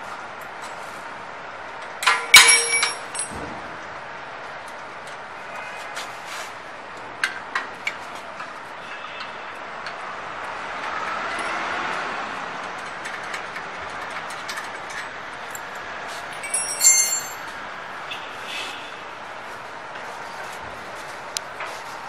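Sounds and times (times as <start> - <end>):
metal parts clicking and knocking: 2.0 - 3.4, 12.6 - 15.6, 16.4 - 17.5
ringing metal clang: 2.0 - 3.4, 16.4 - 17.5.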